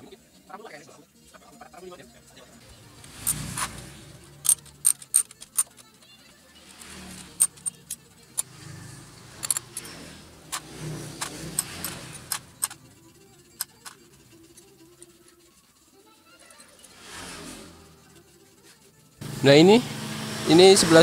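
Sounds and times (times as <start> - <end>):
hand tools clicking on metal: 4.4 - 5.9, 6.6 - 8.6, 9.4 - 12.8.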